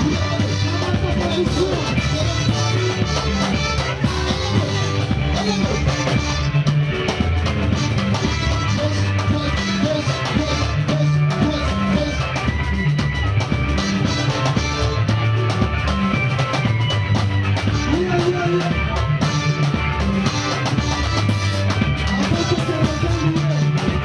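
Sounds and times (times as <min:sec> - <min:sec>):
drums: 0:00.0 - 0:24.0
guitar: 0:00.0 - 0:24.0
praise band playing dance groove: 0:00.0 - 0:24.0.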